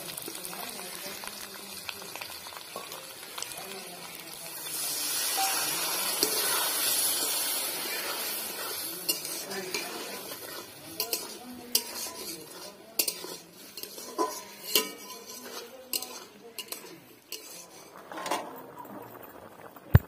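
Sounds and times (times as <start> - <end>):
faint sizzle: 0.0 - 20.0
metal spatula scraping pan: 2.7 - 18.6
metal lid clatter: 9.0 - 17.5.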